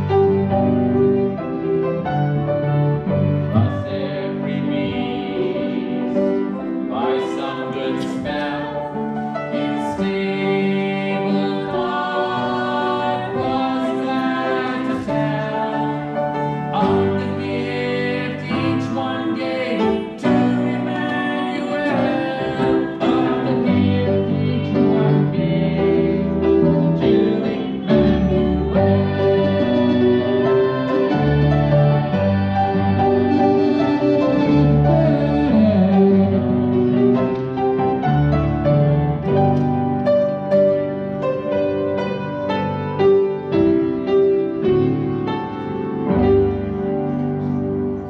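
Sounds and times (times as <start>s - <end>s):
piano music: 0.0s - 48.0s
person singing: 3.4s - 37.5s.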